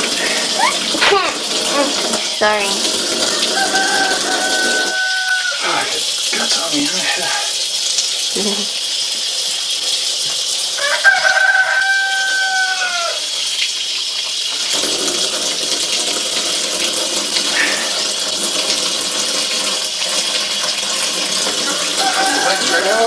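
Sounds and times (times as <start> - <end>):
tap water running into a sink: 0.0 - 23.0
rooster crowing: 3.3 - 5.9, 10.8 - 13.4, 21.8 - 23.0.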